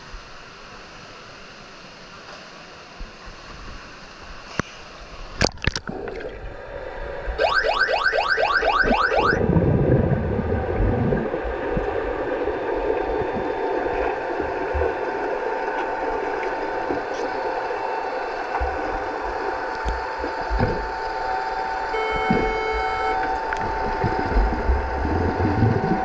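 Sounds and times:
low churning water rumble: 0.0 - 26.0
rapid rising electronic chirps: 7.4 - 9.4, 21.9 - 25.9.

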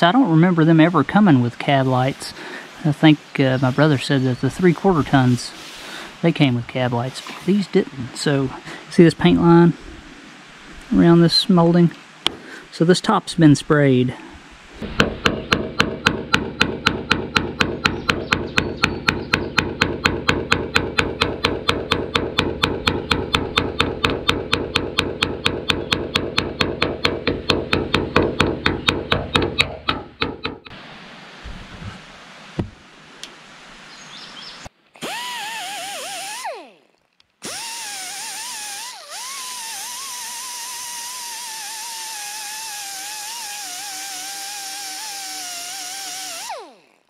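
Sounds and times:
hammer tapping on sheet steel: 15.0 - 30.7.

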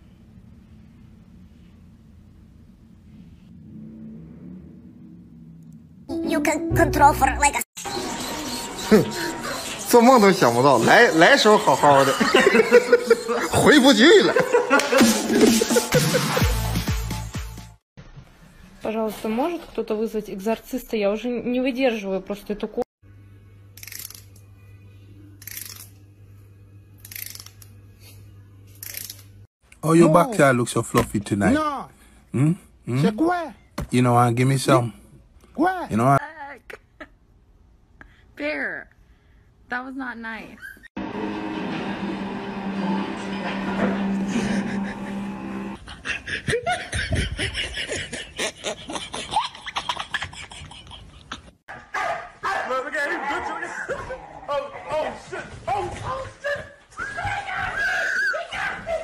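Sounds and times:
low hum: 0.0 - 7.6
person laughing: 8.8 - 9.6, 11.8 - 16.6, 44.3 - 51.6.

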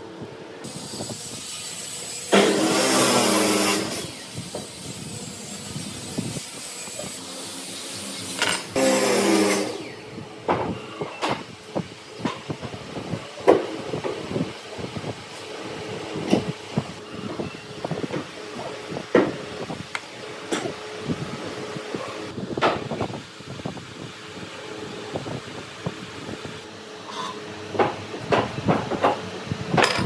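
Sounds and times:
power woodworking tool cutting: 0.7 - 10.1.

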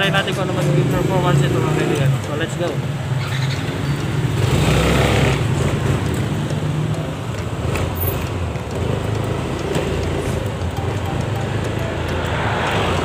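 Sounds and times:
road noise: 0.0 - 13.0.

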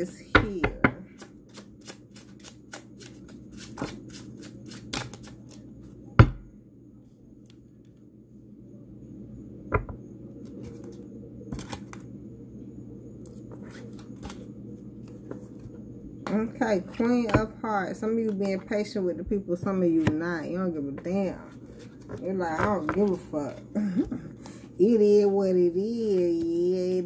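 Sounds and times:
cards being shuffled: 1.5 - 5.6.

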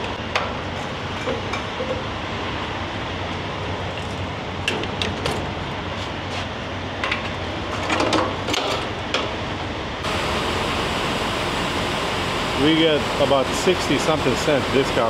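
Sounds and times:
diesel engine idling: 9.8 - 15.0.

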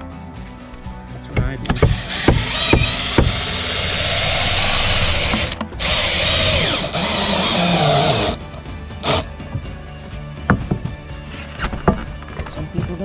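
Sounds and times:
cordless drill boring into wood: 1.8 - 8.4, 9.0 - 9.3.

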